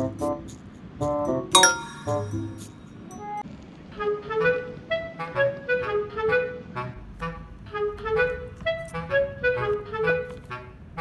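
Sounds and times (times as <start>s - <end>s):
light melody over bass beat: 0.0s - 3.4s.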